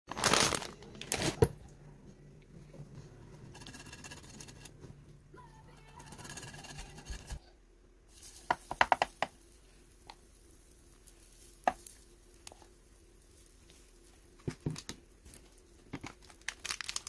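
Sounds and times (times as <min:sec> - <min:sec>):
wooden spoon tapping: 0:08.5 - 0:09.4.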